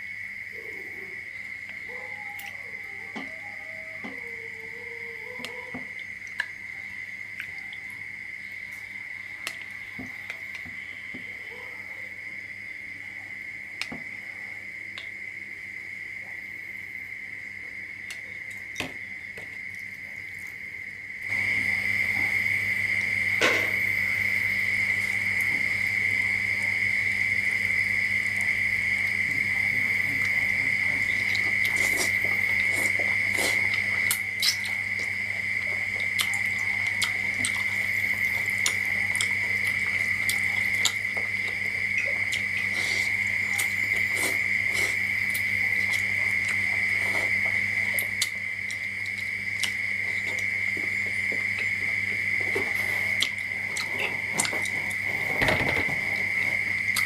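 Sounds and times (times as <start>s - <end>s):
person eating noodles: 30.0s - 57.0s.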